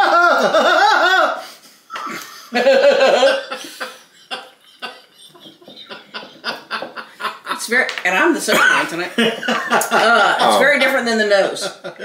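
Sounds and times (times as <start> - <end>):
people laughing: 0.0 - 7.8, 8.5 - 10.7
quiet chuckles and snickers: 3.5 - 7.2.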